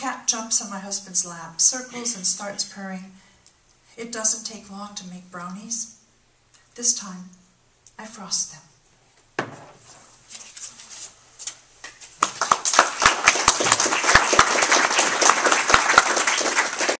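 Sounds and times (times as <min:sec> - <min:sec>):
audience applauding: 0:12.2 - 0:17.0.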